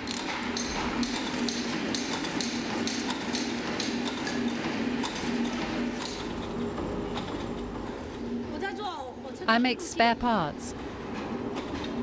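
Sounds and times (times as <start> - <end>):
steady machine hum: 9.4 - 11.2.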